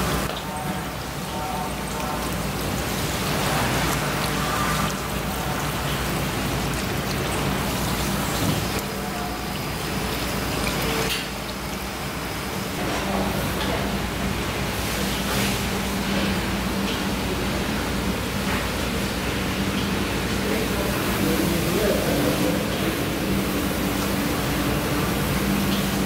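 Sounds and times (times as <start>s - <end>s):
tap water splashing on fish: 6.8s - 8.9s.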